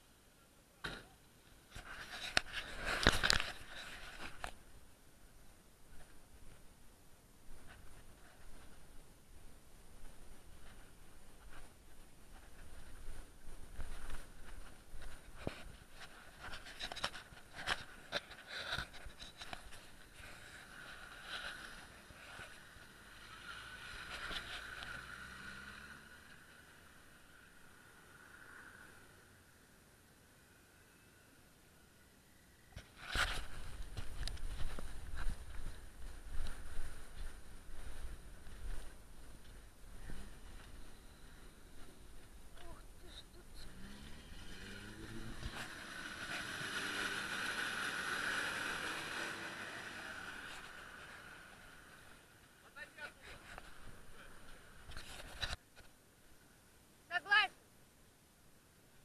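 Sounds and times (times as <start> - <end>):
faint off-road vehicle engine: 0.0 - 59.0
suv engine revving: 22.6 - 26.9, 43.3 - 52.1.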